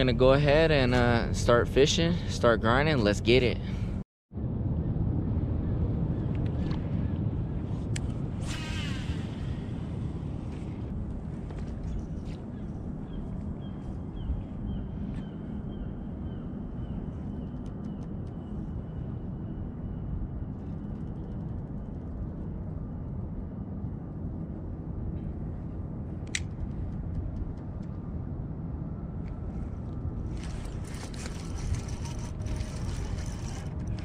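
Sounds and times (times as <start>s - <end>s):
wind and water rumble: 0.0s - 34.0s.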